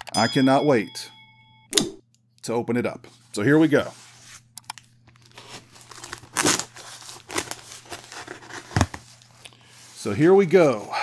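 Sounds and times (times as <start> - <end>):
packing tape tearing: 5.1 - 9.3.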